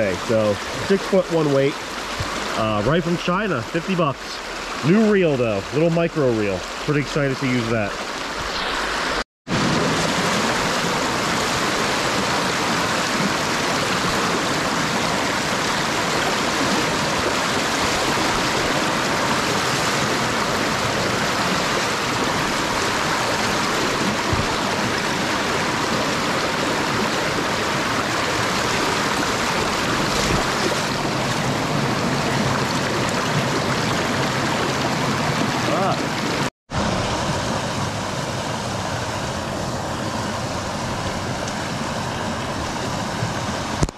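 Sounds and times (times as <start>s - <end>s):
stream rushing over rocks: 0.0s - 43.9s.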